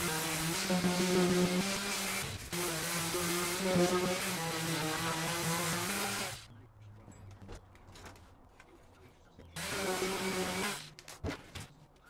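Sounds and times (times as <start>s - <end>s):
electric sander buzzing: 0.0s - 6.4s, 9.6s - 10.9s.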